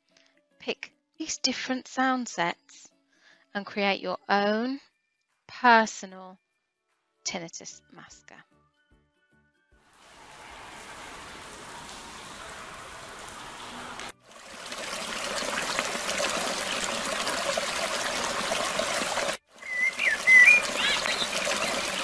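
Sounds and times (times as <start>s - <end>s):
trickling brook: 9.9s - 22.0s
soft cavern ambience: 10.0s - 14.1s
bird chirping: 19.6s - 22.0s.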